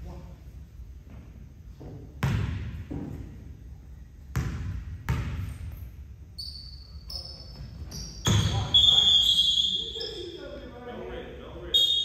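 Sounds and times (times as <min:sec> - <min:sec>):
basketball bouncing on wooden floor: 0:02.2 - 0:03.2, 0:04.3 - 0:05.8.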